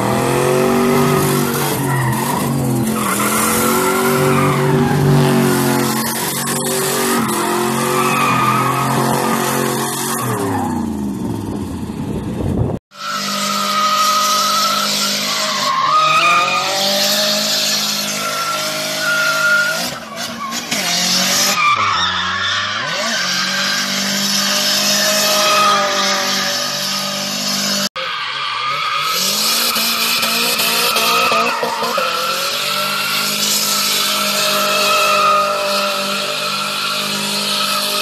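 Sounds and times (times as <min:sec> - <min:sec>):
high-revving car engines: 0:00.0 - 0:38.0
tyres squealing on pavement: 0:00.6 - 0:10.8, 0:12.9 - 0:38.0.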